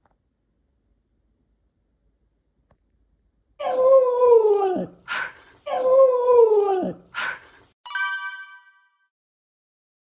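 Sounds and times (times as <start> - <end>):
bright chime: 7.8 - 9.1.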